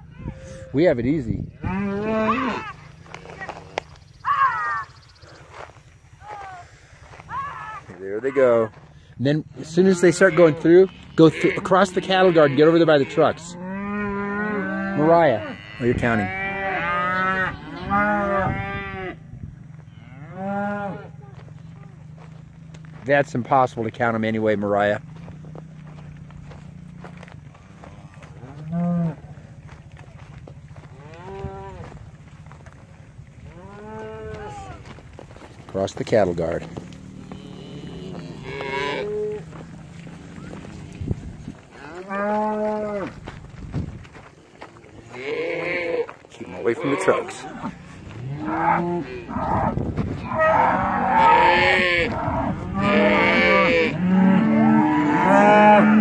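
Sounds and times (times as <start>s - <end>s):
cattle mooing: 0.2s - 0.8s, 1.6s - 4.6s, 9.6s - 19.2s, 19.8s - 21.2s, 26.6s - 29.4s, 30.8s - 32.0s, 33.4s - 34.9s, 36.6s - 40.9s, 41.7s - 43.2s, 45.0s - 56.0s.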